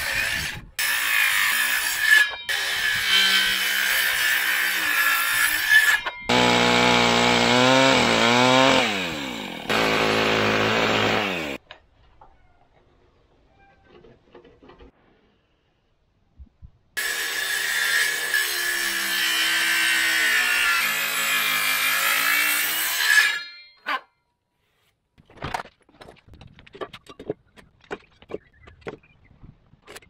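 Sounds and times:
circular saw cutting timber: 0:00.0 - 0:11.6, 0:17.0 - 0:24.0.

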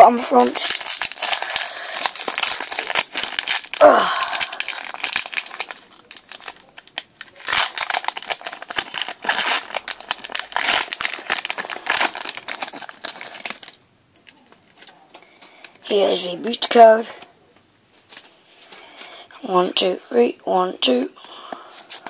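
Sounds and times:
foil wrapper crinkling: 0:00.1 - 0:15.7.

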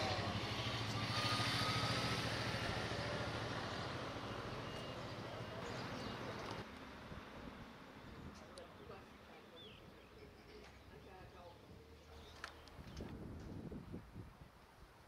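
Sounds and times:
race car engine at high revs: 0:00.0 - 0:04.0.

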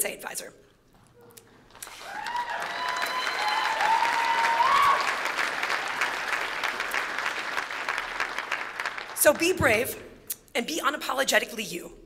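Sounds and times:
audience applauding: 0:01.8 - 0:09.5
people whooping: 0:01.9 - 0:06.2.

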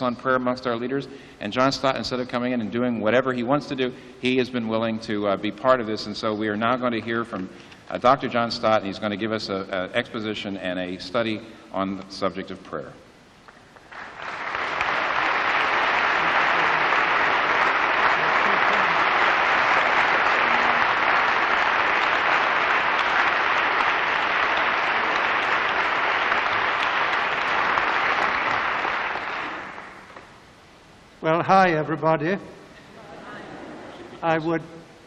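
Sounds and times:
audience applauding: 0:13.8 - 0:30.2.

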